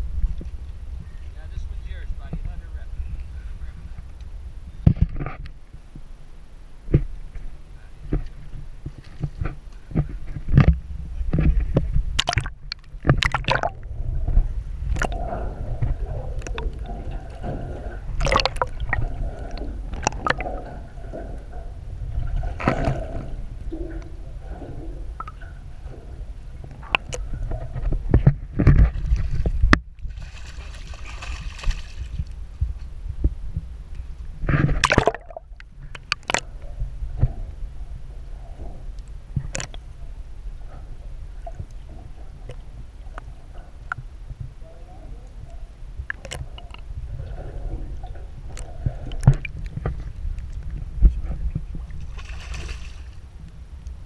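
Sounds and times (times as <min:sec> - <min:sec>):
steady low rumble: 0:00.0 - 0:54.0
water sloshing and gurgling: 0:06.8 - 0:54.0
splashes: 0:12.2 - 0:13.9, 0:14.9 - 0:21.4, 0:30.1 - 0:32.2, 0:34.8 - 0:36.4, 0:51.8 - 0:53.2.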